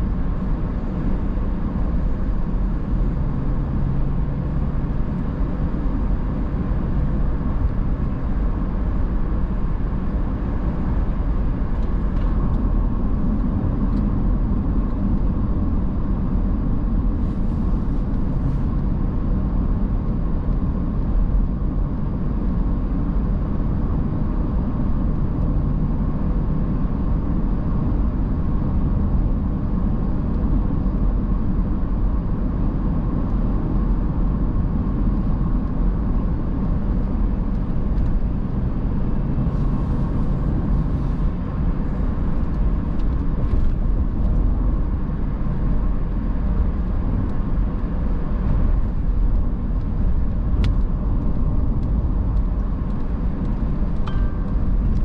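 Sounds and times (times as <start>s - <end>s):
road and engine rumble in car: 0.0s - 55.0s
faint steady hum: 51.8s - 55.0s.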